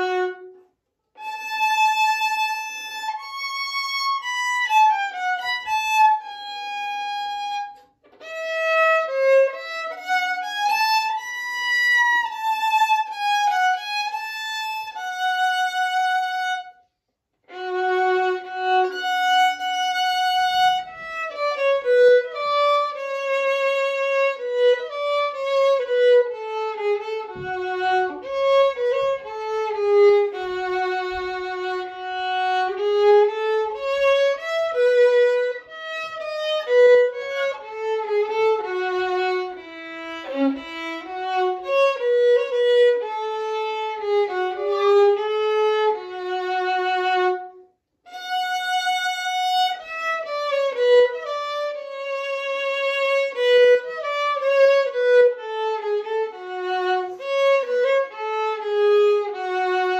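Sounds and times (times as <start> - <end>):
solo violin melody: 0.0 - 59.9.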